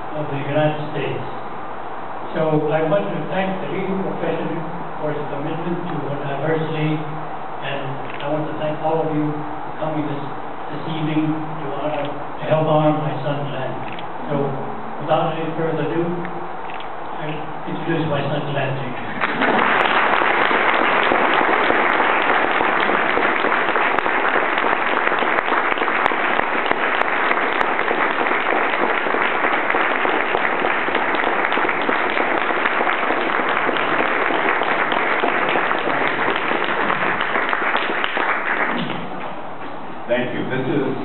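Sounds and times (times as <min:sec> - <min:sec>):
audience applauding: 0:19.1 - 0:39.2.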